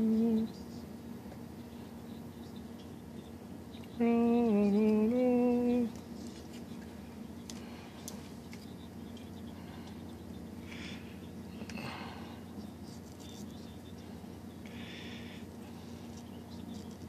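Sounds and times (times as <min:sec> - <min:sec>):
man humming: 0:00.0 - 0:00.5, 0:04.0 - 0:05.9.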